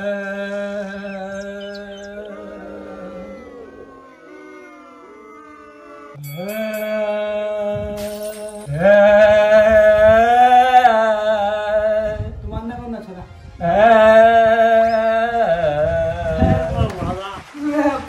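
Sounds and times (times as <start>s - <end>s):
man singing unaccompanied: 0.0s - 2.4s, 6.3s - 12.6s, 13.6s - 16.8s.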